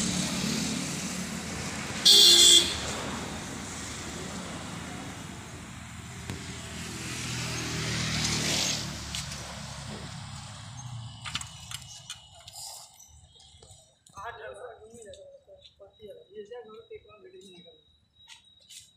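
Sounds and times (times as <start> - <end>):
vehicle passing: 0.0 - 13.0.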